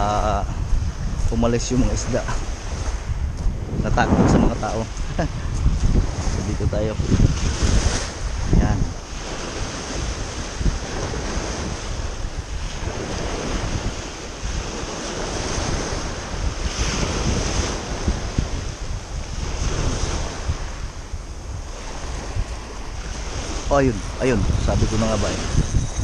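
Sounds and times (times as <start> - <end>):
wind buffeting the microphone: 0.0 - 26.0
waves washing on a pebble shore: 7.3 - 25.7.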